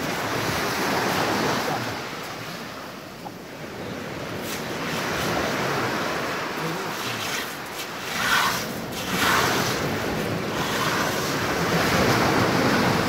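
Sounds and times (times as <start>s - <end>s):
wind buffeting microphone: 0.0s - 13.0s
surf washing onto pebbles: 4.0s - 13.0s.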